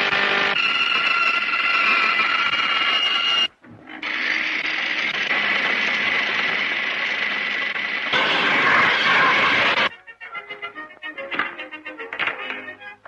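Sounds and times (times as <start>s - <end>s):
large saw whirring: 0.0s - 9.9s
band saw whining: 0.0s - 11.2s.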